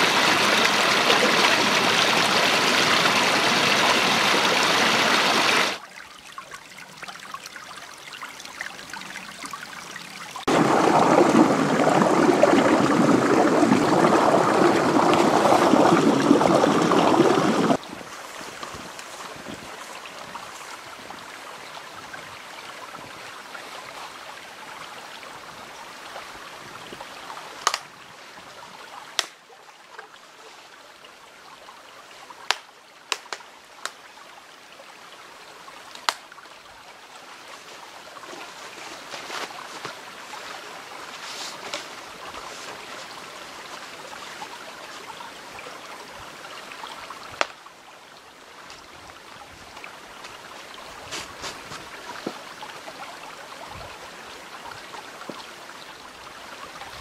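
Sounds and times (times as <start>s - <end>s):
stream running: 0.0s - 57.0s
short sharp cracks: 27.6s - 27.9s.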